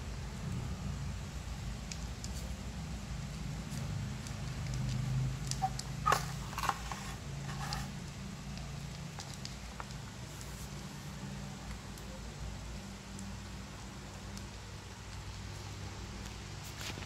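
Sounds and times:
low steady hum: 0:00.0 - 0:17.0
cats crunching dry kibble: 0:01.7 - 0:12.1.

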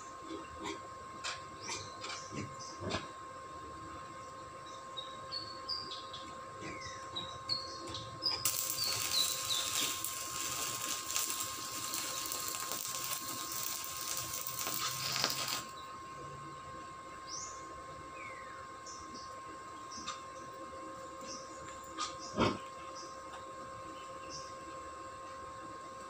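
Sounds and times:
arc welder crackling hiss: 0:08.4 - 0:15.8.

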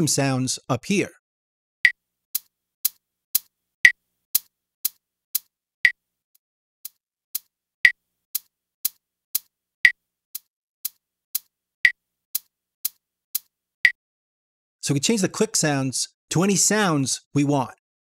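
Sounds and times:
metronome clicks: 0:06.8 - 0:14.0.

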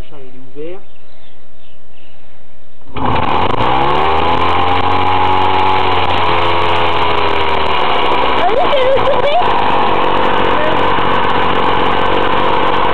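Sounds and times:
two-stroke engine starting: 0:02.9 - 0:12.9.

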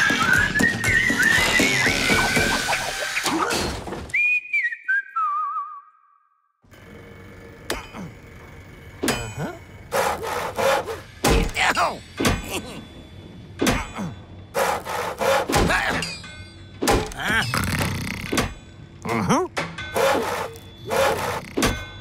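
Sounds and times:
hand saw cutting wood: 0:09.9 - 0:11.0, 0:14.6 - 0:15.6, 0:20.0 - 0:21.6.

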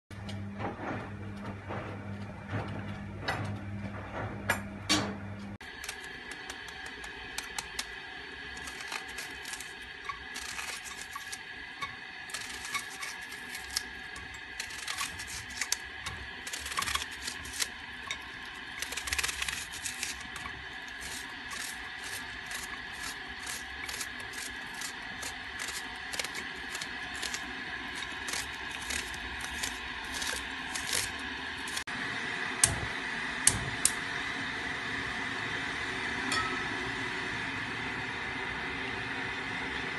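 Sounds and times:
knife chopping onion: 0:12.3 - 0:31.8.

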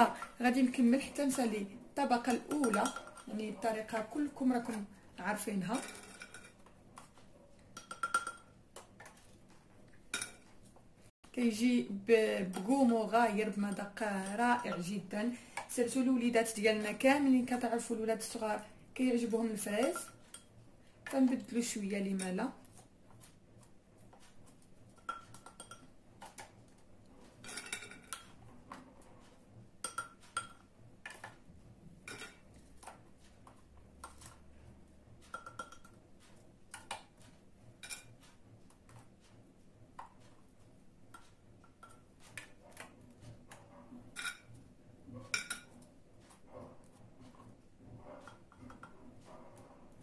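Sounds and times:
biscuits clinking on ceramic bowl: 0:02.2 - 0:03.4, 0:07.7 - 0:09.2, 0:25.0 - 0:26.4, 0:27.4 - 0:28.4, 0:29.8 - 0:31.4, 0:32.0 - 0:32.5, 0:35.3 - 0:36.0, 0:45.3 - 0:45.8.

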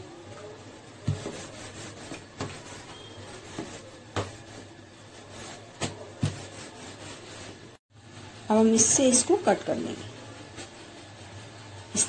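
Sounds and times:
rolling pin rubbing over dough: 0:00.6 - 0:07.8.

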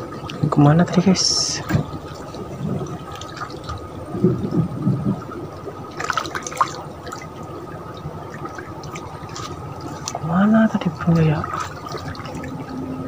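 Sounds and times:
water lapping against boat hull: 0:00.0 - 0:13.0
sharp splash: 0:05.9 - 0:07.3, 0:08.6 - 0:10.4, 0:11.0 - 0:12.6.

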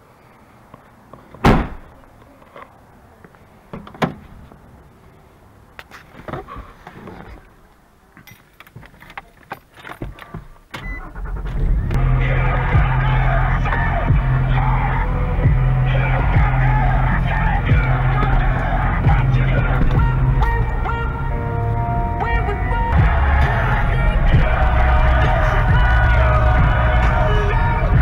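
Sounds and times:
car hatch slamming: 0:01.4 - 0:01.8
car engine starting and idling: 0:10.6 - 0:28.0.

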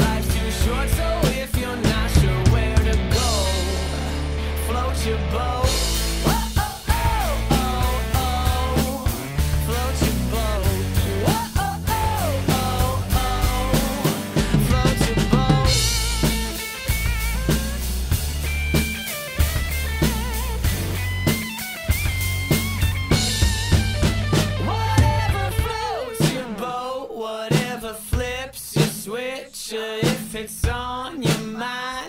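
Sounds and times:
drum kit beat: 0:00.0 - 0:04.6, 0:05.6 - 0:26.8, 0:27.5 - 0:29.2, 0:30.0 - 0:31.7
recorded song with singing: 0:00.0 - 0:16.6, 0:24.5 - 0:32.0.

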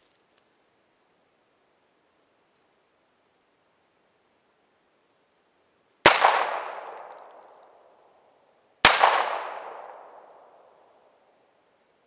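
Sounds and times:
handgun shots with echo: 0:06.1 - 0:07.6, 0:08.8 - 0:10.7.

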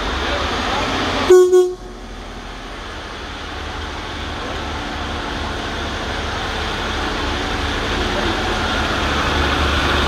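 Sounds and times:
diesel train engines rumbling: 0:00.0 - 0:10.0
train horn blast: 0:01.3 - 0:02.0.

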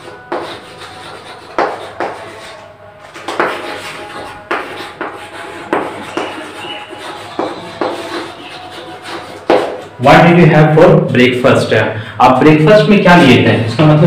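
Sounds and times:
chalk tapping and scratching: 0:00.0 - 0:10.0.

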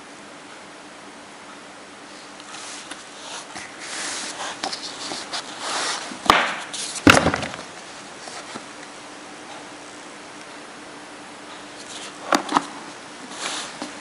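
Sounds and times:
cardboard box rustling: 0:02.7 - 0:06.2
box knocking: 0:06.3 - 0:07.6.

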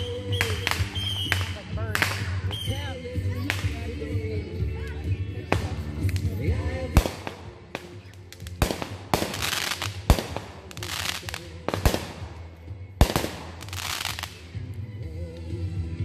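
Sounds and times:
fireworks bangs: 0:00.0 - 0:03.8, 0:05.5 - 0:14.4
crackling sizzling fireworks stars: 0:00.0 - 0:15.7.

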